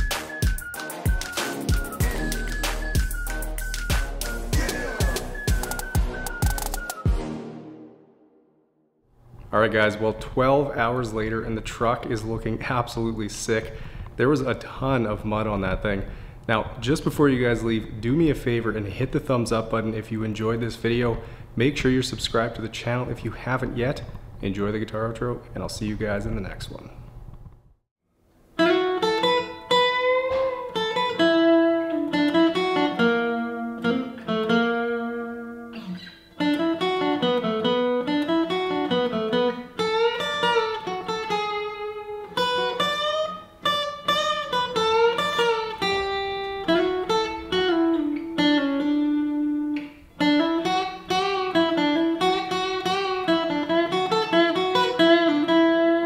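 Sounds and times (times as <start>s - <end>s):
solo guitar plucked melody: 28.6s - 56.0s.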